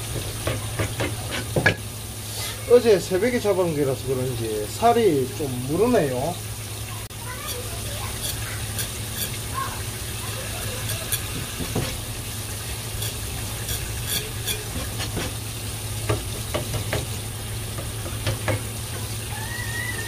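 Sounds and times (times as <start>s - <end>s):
tap water running onto board: 0.0s - 20.0s
knife scraping and tapping board: 0.1s - 1.8s, 7.4s - 9.4s, 10.8s - 12.1s, 13.0s - 15.4s, 16.1s - 17.1s, 17.8s - 19.1s.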